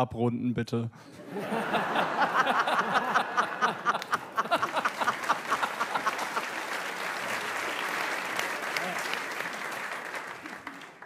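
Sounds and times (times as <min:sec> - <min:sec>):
audience laughing: 0:01.1 - 0:07.8
audience applause: 0:01.6 - 0:11.0.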